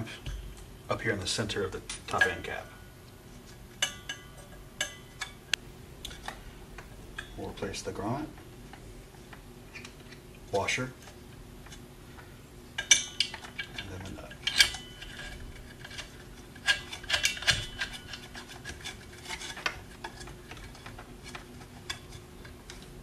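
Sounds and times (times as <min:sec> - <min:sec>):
small metal parts clicking: 0:12.8 - 0:22.9.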